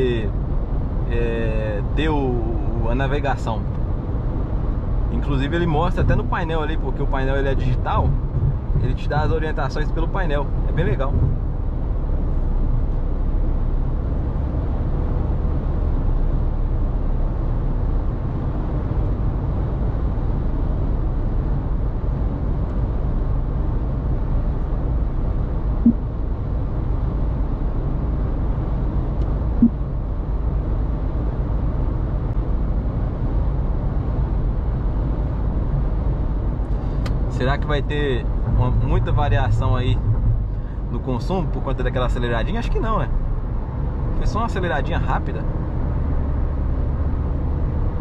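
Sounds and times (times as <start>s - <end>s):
car engine drone in cabin: 0.0s - 48.0s
short low blips: 25.8s - 26.1s, 29.6s - 29.8s.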